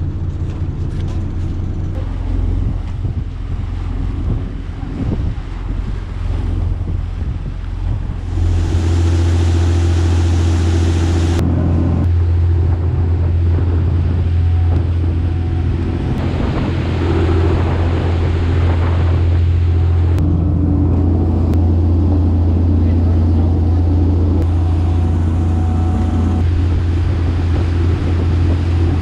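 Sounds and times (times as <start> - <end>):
boat engine low drone: 0.0 - 29.0
wind buffeting microphone: 0.0 - 29.0
water rushing past hull: 1.6 - 29.0.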